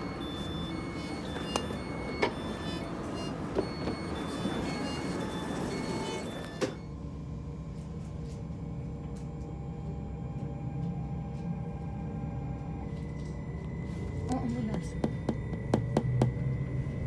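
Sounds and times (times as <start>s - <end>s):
traction inverter whining: 0.0s - 7.6s.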